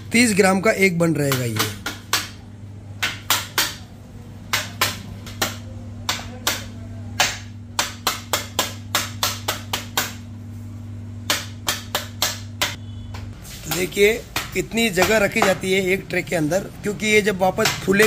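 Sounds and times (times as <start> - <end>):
steady low hum: 0.0 - 18.0
metal scraper tapping stone counter: 1.2 - 2.4, 13.7 - 15.8, 17.5 - 18.0.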